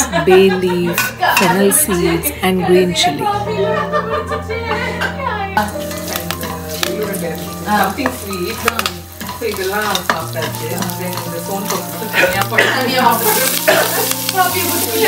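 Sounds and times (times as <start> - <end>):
background music: 0.0 - 15.0
spices sizzling in hot oil: 5.6 - 15.0
spoon clicking in pan: 8.0 - 12.5.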